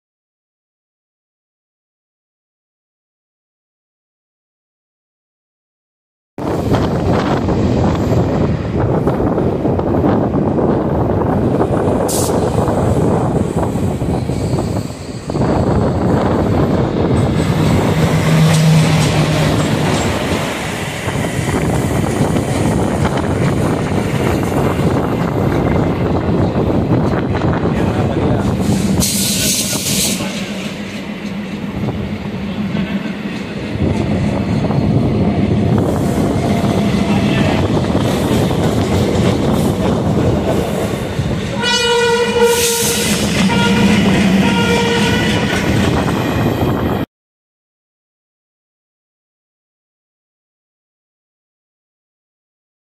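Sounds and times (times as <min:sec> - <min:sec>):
train wheels rumbling and clattering: 0:06.4 - 0:47.0
locomotive horn: 0:17.7 - 0:20.0, 0:41.6 - 0:45.6.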